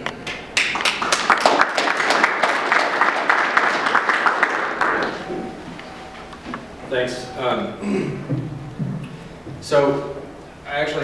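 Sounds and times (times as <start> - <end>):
audience applauding: 0.3 - 5.3.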